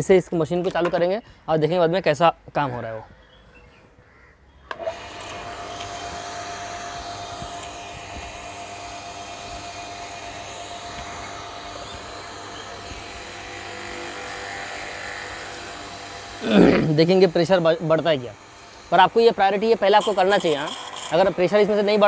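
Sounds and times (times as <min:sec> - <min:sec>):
pressure washer running: 0:04.7 - 0:22.0.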